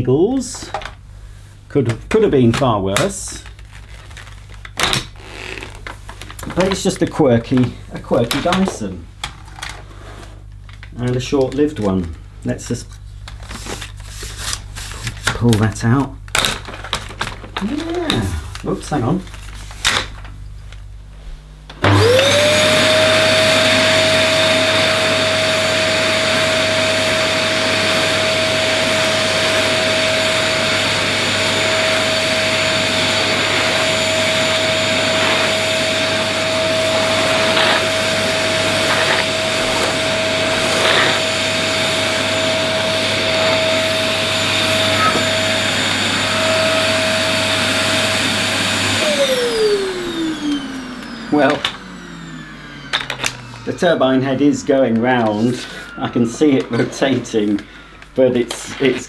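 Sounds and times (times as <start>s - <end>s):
vacuum cleaner motor whine: 17.6s - 19.8s, 21.7s - 59.0s
brush head pushed over carpet: 28.8s - 46.9s.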